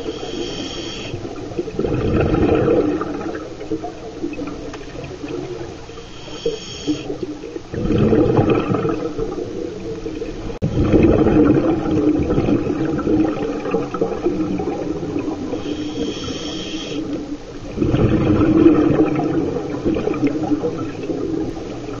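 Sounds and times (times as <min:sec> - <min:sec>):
regulator hissing inhalations: 0:00.0 - 0:01.2, 0:05.9 - 0:07.2, 0:15.5 - 0:17.1
bubbling exhaled air: 0:00.0 - 0:22.0.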